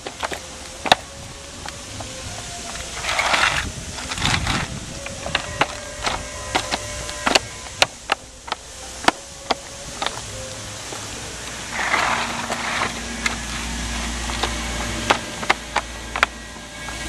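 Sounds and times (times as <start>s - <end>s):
plastic panel scraping rustle: 0.0s - 17.0s.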